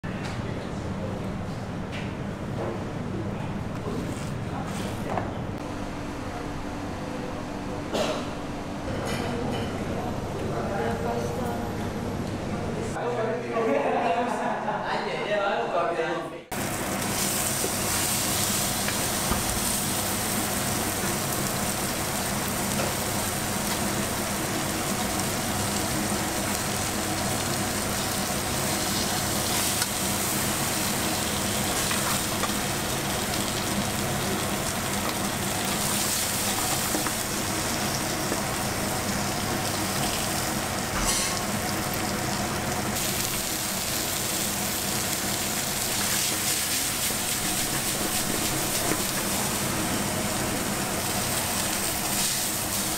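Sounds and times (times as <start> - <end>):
beef sizzling in a frying pan: 16.6 - 52.9.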